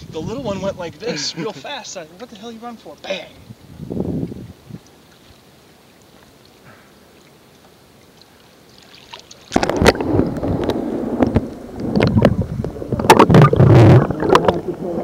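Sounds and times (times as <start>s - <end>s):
underwater gurgling and rushing: 7.8s - 15.0s.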